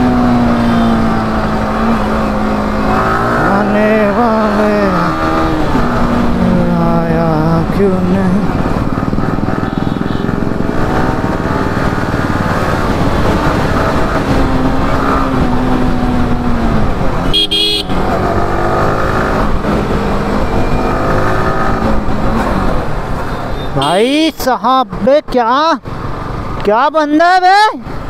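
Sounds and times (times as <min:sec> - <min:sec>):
motorcycle engine running: 0:00.0 - 0:23.3
vehicle horn honking: 0:09.5 - 0:10.4, 0:17.3 - 0:18.0, 0:23.3 - 0:24.4.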